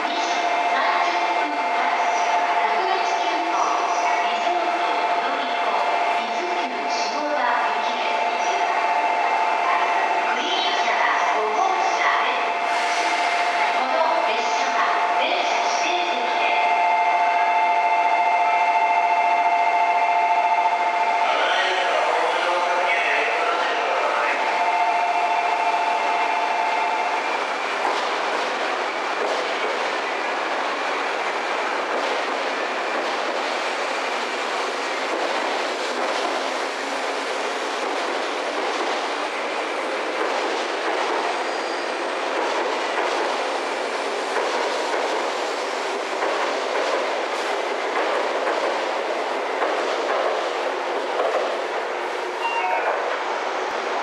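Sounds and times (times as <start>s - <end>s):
train wheels rolling on rails: 18.3s - 54.0s.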